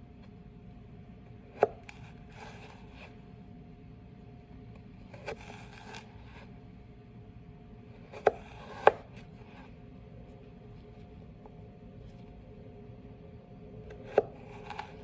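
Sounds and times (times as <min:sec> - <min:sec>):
knife slicing carrot: 0:05.1 - 0:06.5, 0:08.0 - 0:09.7, 0:13.9 - 0:15.0.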